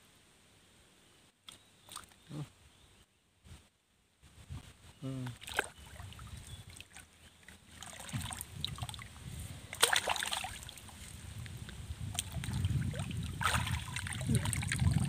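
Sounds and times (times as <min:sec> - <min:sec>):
water sloshing and splashing: 0:05.4 - 0:09.1, 0:09.7 - 0:15.0
sharp water splash: 0:09.7 - 0:10.9, 0:12.1 - 0:15.0.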